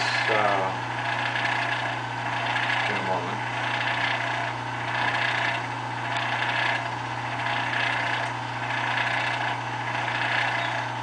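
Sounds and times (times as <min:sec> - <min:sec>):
pulsing hiss: 0:00.0 - 0:01.8
low electrical hum: 0:00.0 - 0:11.0.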